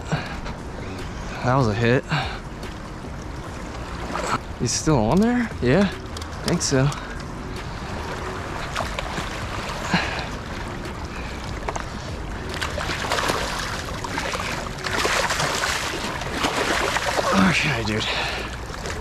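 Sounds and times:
turbulent river water rushing: 3.8 - 19.0
fish splashing: 7.4 - 19.0.

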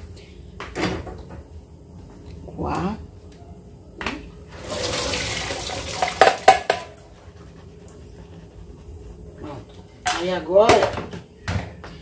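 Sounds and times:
water splashing into a sink: 4.6 - 6.9
pan knocking against colander: 6.0 - 7.0.

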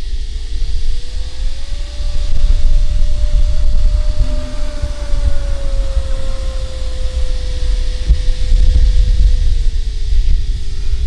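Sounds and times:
model plane propeller whine: 0.0 - 11.0
wind rumble on microphone: 0.0 - 11.0.

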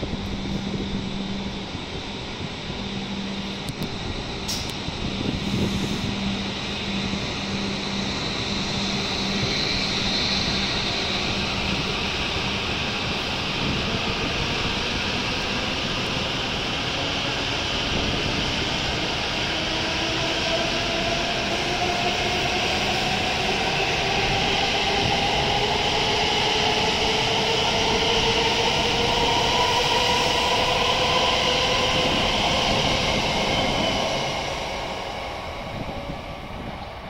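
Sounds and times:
train cars running noise: 0.0 - 37.0.

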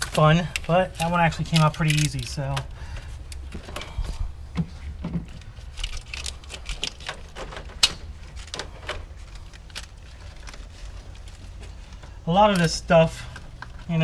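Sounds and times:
plastic clips clicking and rattling: 0.0 - 2.7, 5.4 - 11.4.

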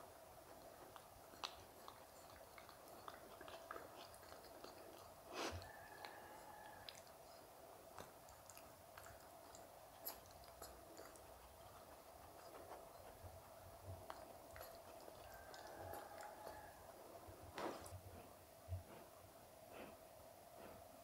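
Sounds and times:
puppy licking wet clicks: 0.4 - 17.2.

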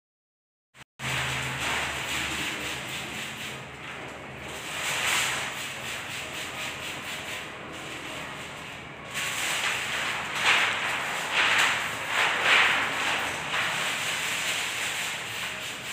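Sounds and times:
plastic film rustling and crinkling: 4.5 - 15.9.

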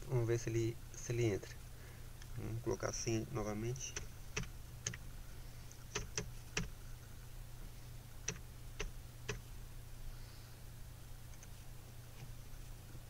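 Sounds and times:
faint low hum: 0.0 - 13.0
sharp computer clicks: 3.8 - 5.0, 5.9 - 6.8.

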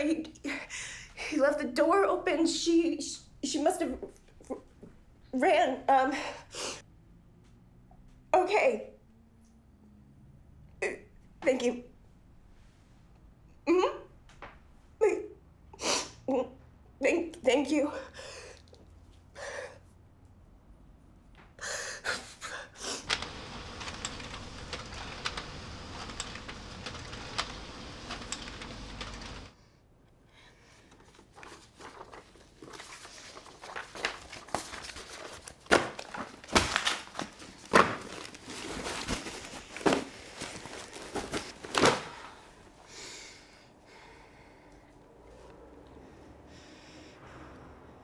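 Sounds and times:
paper rustling and crinkling: 30.9 - 42.4.

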